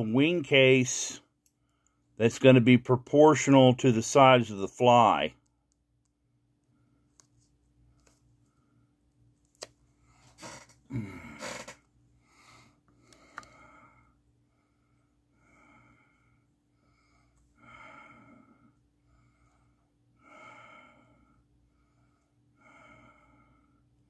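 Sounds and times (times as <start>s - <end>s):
man breathing through nose: 10.0s - 23.8s
rough breath or throat noise: 10.2s - 11.8s.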